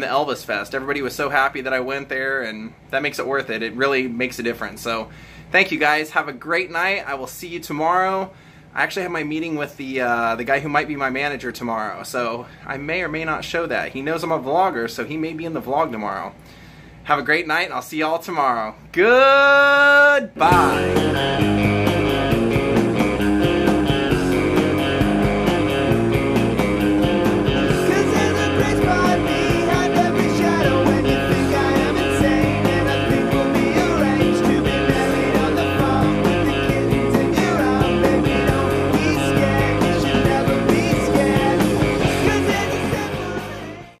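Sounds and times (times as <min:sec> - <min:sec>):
music with drum beat: 0:20.4 - 0:44.0.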